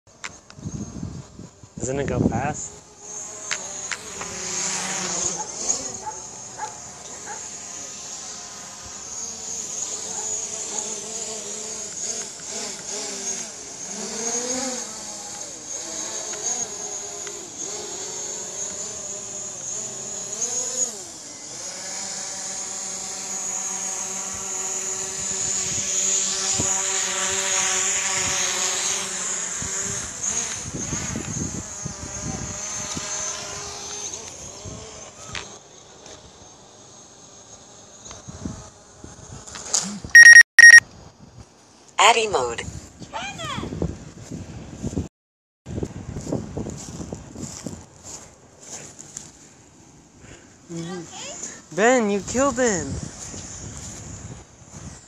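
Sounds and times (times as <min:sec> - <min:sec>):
drone propellers buzzing: 0:00.1 - 0:39.3.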